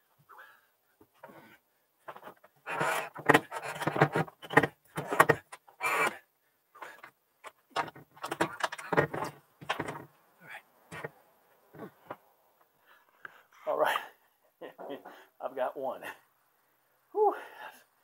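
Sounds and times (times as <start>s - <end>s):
man moving about on roof: 1.0s - 6.2s, 6.8s - 12.6s
solar panel knocking and rattling: 2.1s - 5.6s, 7.4s - 10.1s.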